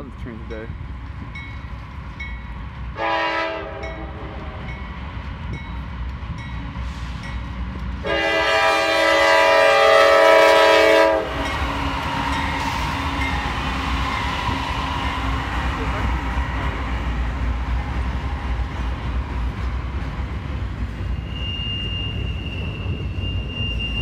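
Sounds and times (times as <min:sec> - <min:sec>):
locomotives rumbling past: 0:00.0 - 0:24.0
locomotive air horn blasts: 0:03.0 - 0:04.4, 0:08.0 - 0:11.6.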